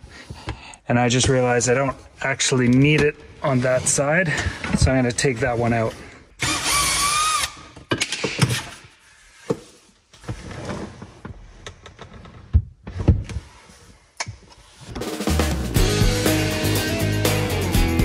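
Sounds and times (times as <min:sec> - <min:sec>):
cordless drill whirring: 0:06.4 - 0:07.7
knocks and clunks of parts: 0:07.7 - 0:08.8
background music: 0:15.0 - 0:18.0.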